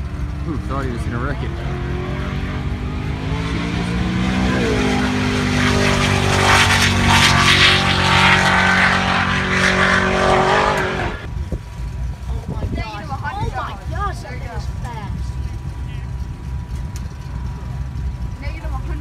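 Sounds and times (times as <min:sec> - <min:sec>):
car engine at full throttle passing: 0:00.0 - 0:11.3.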